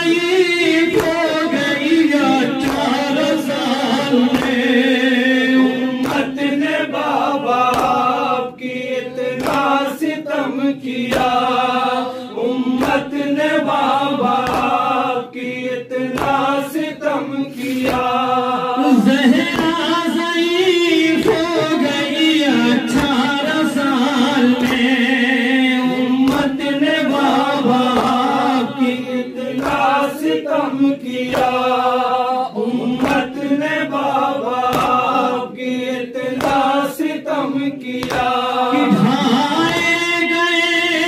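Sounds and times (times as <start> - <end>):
lead voice on a microphone: 0.0 - 8.5, 18.0 - 29.9, 38.5 - 41.0
men chanting a lament: 0.0 - 41.0.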